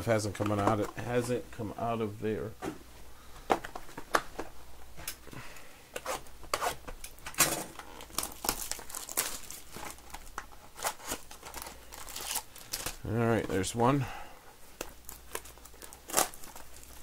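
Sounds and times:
plastic packaging crinkling and tearing: 7.0s - 13.8s, 14.8s - 17.0s.

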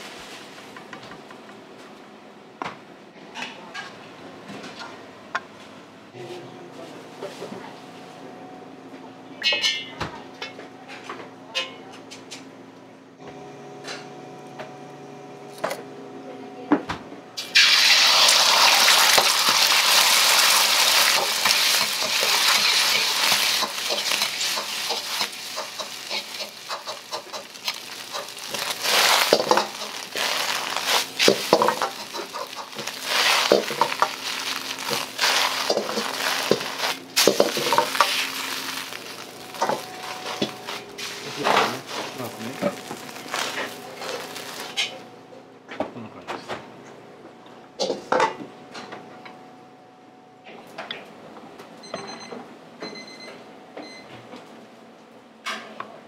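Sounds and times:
egg sizzling in hot oil: 17.4s - 44.9s.

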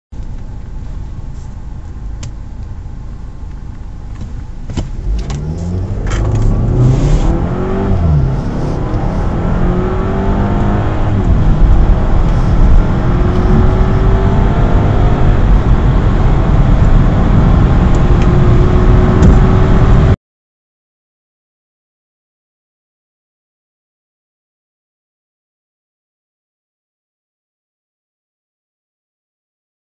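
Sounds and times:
car engine idling and accelerating: 0.2s - 20.2s.

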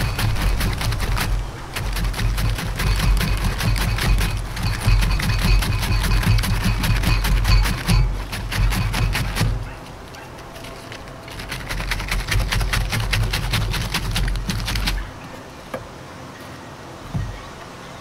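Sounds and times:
cabbage shredded on mandoline: 0.0s - 9.8s, 10.6s - 15.0s.

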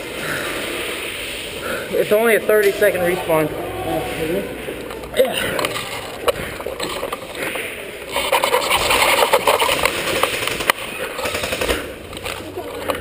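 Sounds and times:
airsoft guns firing in bursts: 8.8s - 12.2s.

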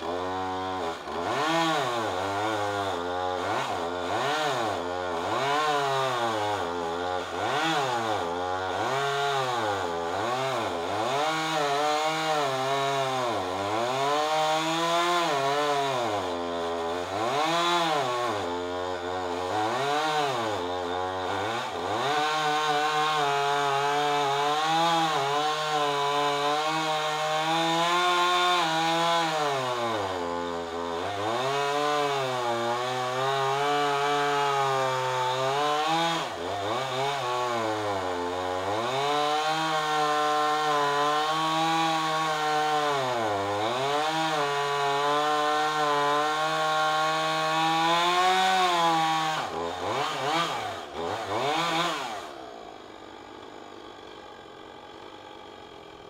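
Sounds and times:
chainsaw cutting wood: 0.0s - 56.0s.

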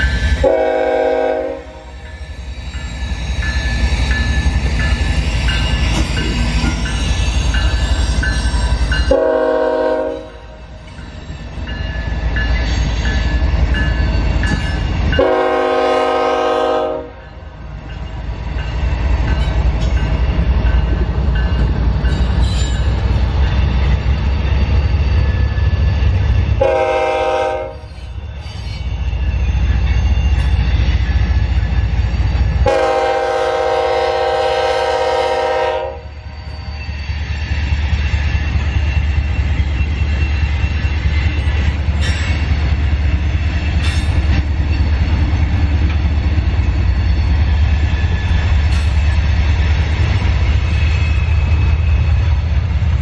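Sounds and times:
train rolling past: 0.0s - 53.0s
locomotive air horn blasts: 0.4s - 1.9s, 9.1s - 10.5s, 15.2s - 17.2s, 26.6s - 27.9s, 32.6s - 36.1s.

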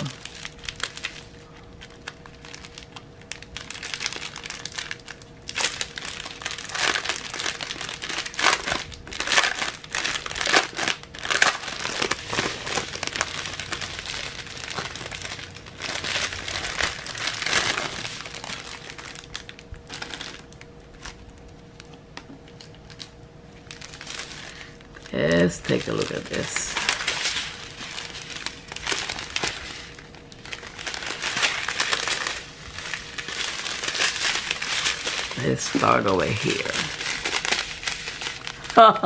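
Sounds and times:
plastic bags crinkling: 0.0s - 39.0s.

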